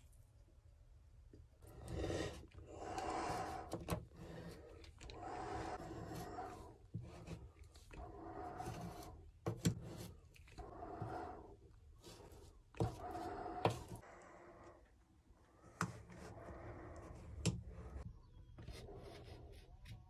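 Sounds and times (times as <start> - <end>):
stick scraping epoxy: 1.7 - 14.0.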